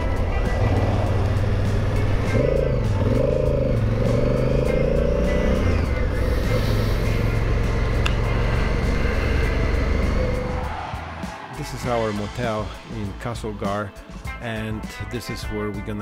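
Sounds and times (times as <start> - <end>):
motorcycle engine running: 0.0 - 11.0
tyres on wet road: 5.7 - 11.4.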